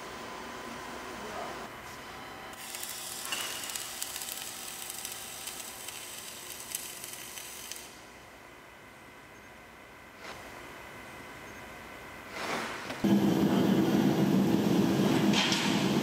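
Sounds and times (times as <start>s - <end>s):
welding arc crackling sizzle: 2.5s - 8.5s, 12.3s - 16.0s.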